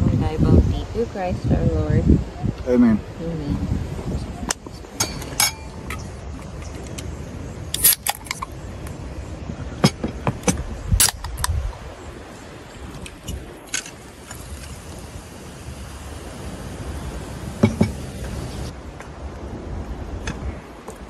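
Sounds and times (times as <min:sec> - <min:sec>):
soda can opening: 0:07.8 - 0:08.5.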